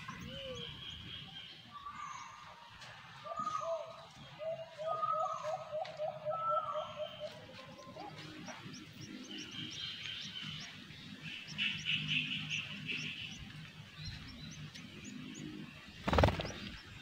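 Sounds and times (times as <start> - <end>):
songbirds chirping: 0.0 - 17.0
buzzy bird chatter: 6.8 - 17.0.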